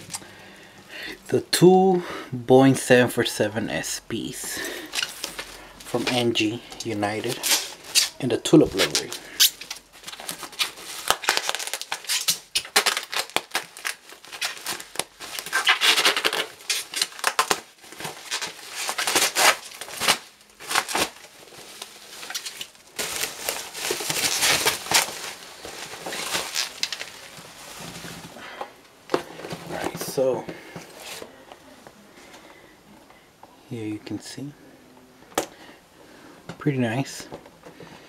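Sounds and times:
box packaging rustling: 4.8 - 31.4.

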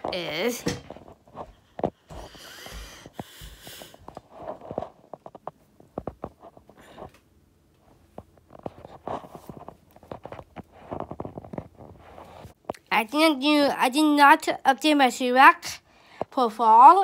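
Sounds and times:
breathy sniff: 2.2 - 4.0.

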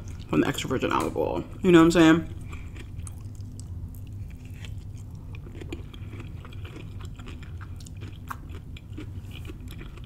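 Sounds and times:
low steady hum: 0.0 - 10.0
chewing with wet mouth clicks: 2.4 - 10.0.

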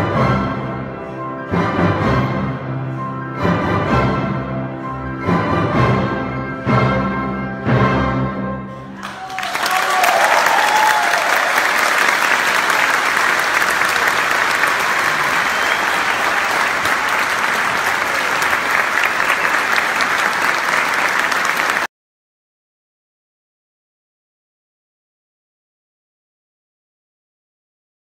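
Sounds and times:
audience applause: 9.0 - 21.9.

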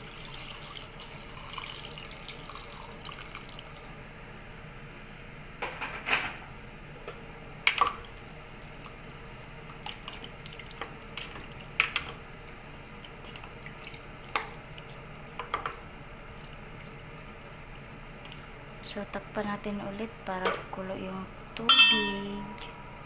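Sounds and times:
liquid sloshing in a pot: 7.7 - 17.5.

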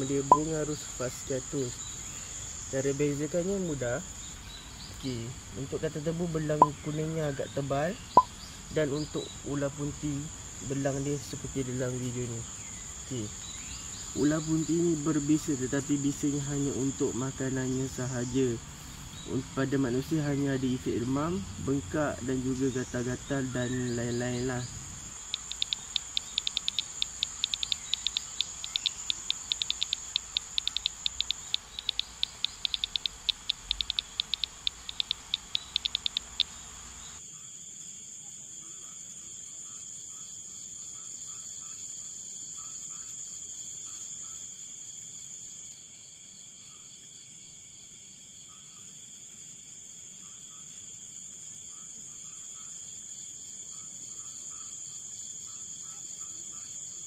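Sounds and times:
crickets chirping: 0.0 - 57.0
faint ticking: 25.1 - 37.2.

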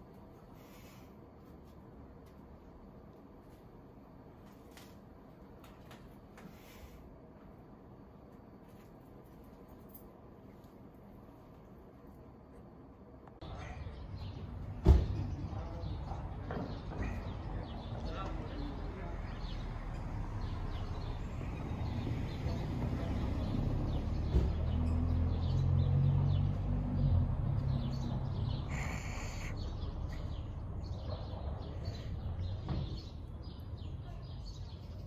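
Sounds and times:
low engine rumble: 9.1 - 35.0
birds chirping: 13.4 - 35.0.

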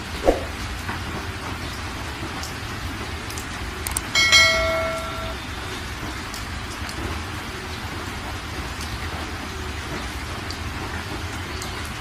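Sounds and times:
rain-like hiss: 0.0 - 12.0
notification bell ding: 4.2 - 5.4.

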